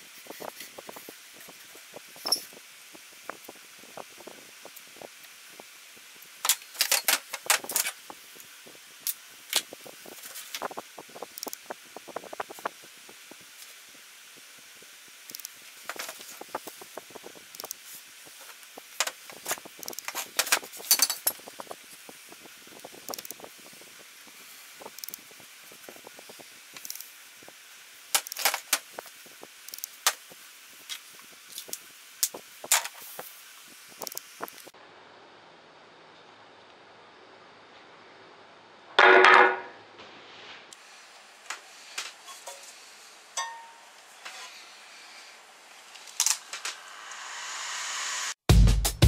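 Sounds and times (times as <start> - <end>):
sharp knock: 39.0 - 39.7
tools laid down on workbench: 39.0 - 39.7.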